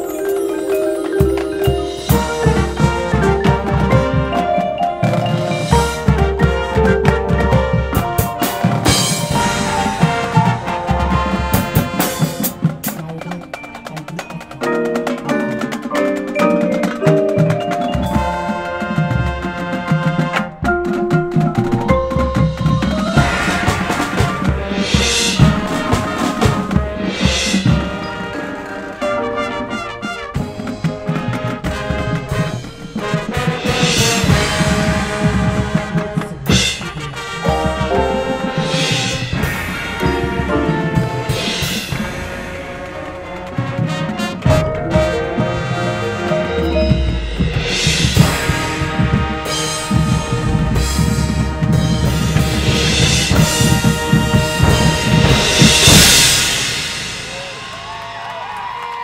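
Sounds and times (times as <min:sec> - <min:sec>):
drum and percussion hits: 0:00.0 - 0:59.0
marching band playing: 0:00.0 - 0:59.0.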